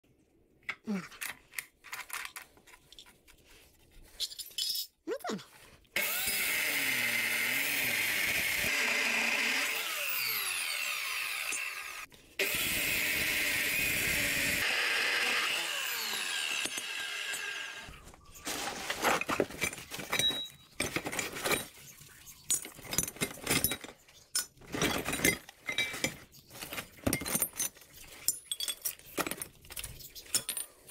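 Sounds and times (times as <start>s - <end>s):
metal pieces knocking and clinking: 4.2s - 5.0s, 22.4s - 30.9s
chop saw grinding through steel: 6.0s - 18.0s.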